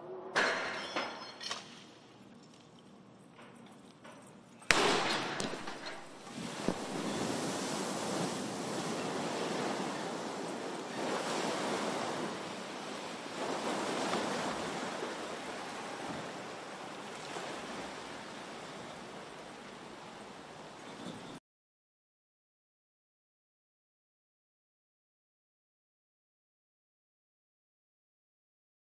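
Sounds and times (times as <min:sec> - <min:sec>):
water rushing and splashing: 0:04.7 - 0:21.4.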